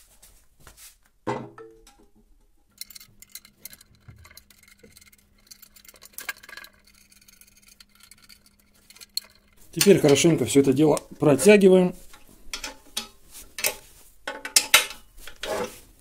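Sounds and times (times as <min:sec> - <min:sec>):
small metallic clicks and taps: 0:12.1 - 0:15.0.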